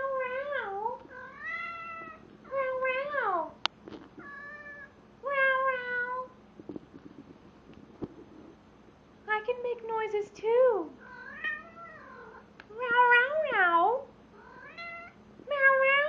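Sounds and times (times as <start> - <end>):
cat yowling: 11.0 - 13.6, 14.4 - 16.0.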